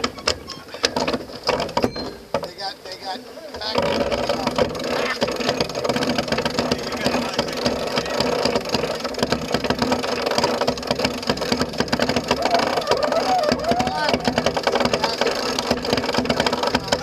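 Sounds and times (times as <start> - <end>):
water: 0.0 - 17.0
wind: 0.0 - 17.0
winch ratcheting clicks: 3.5 - 17.0.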